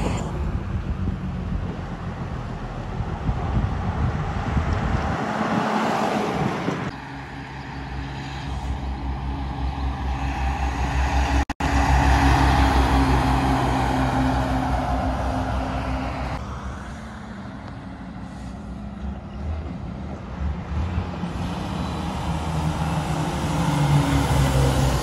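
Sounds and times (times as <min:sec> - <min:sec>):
diesel trucks passing: 0:00.0 - 0:25.0
truck tyre noise: 0:00.0 - 0:25.0.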